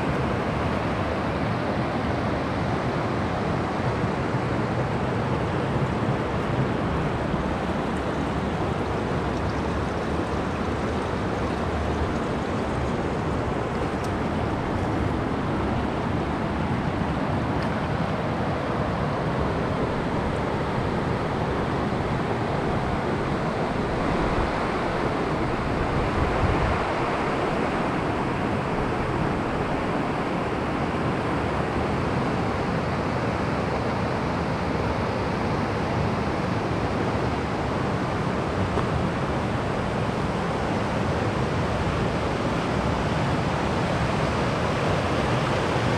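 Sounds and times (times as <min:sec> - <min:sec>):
water rushing over rocks: 0:00.0 - 0:45.9.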